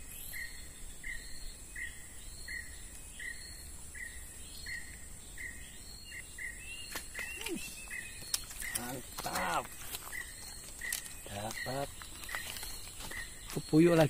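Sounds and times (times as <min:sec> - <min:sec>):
insects droning: 0:00.0 - 0:14.0
bird short call: 0:06.9 - 0:08.0.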